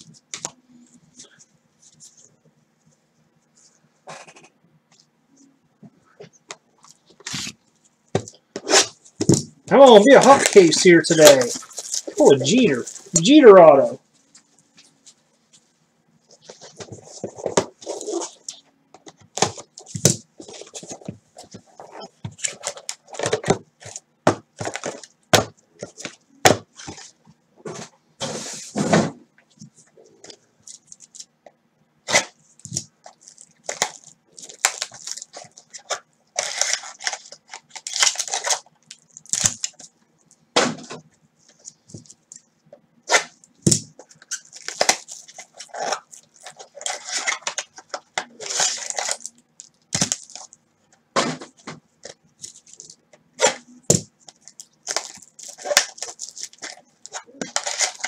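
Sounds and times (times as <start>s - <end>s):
faint steady hum: 0.0s - 58.0s
plastic wrap crinkling and tearing: 9.7s - 15.1s, 32.1s - 40.4s, 43.1s - 50.6s, 52.0s - 58.0s.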